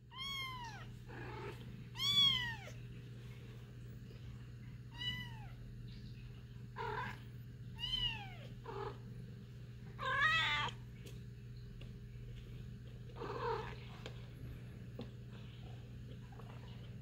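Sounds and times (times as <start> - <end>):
cats meowing: 0.0 - 2.8, 7.8 - 9.0, 10.0 - 10.8.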